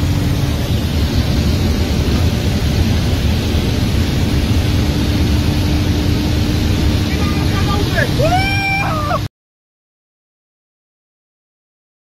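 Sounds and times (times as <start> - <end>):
car cabin noise at high speed: 0.0 - 9.3.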